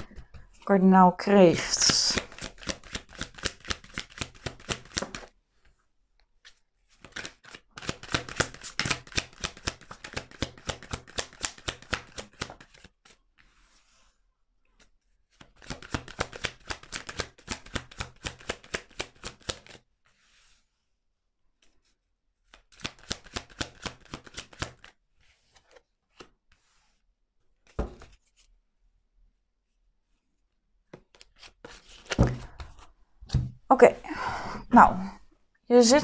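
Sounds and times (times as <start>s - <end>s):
cards shuffling and flicking: 1.6s - 5.3s, 6.4s - 13.6s, 14.8s - 19.8s, 22.4s - 26.6s, 27.6s - 28.5s, 30.9s - 32.9s.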